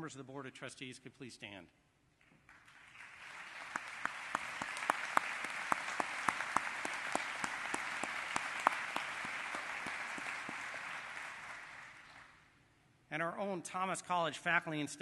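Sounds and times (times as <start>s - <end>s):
audience applause: 2.5s - 12.4s.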